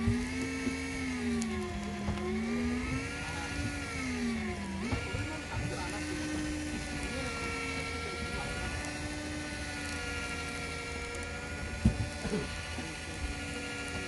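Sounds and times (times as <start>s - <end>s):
fishing reel motor whining: 0.0s - 14.0s.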